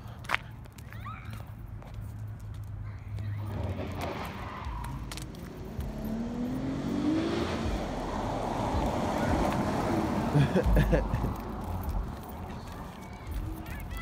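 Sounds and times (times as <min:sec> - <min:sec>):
road and tyre noise: 0:00.0 - 0:14.0
car engine accelerating: 0:03.3 - 0:12.8.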